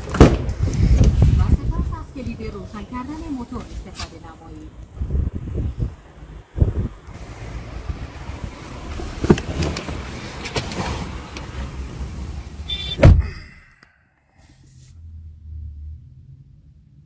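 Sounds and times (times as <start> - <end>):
car door shutting thud: 12.8 - 13.3.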